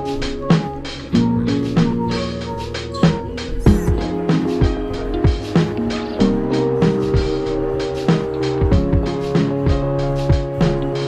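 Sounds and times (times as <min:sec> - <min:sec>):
held synth chords: 0:00.0 - 0:11.0
deep bass drum hits: 0:03.1 - 0:06.4.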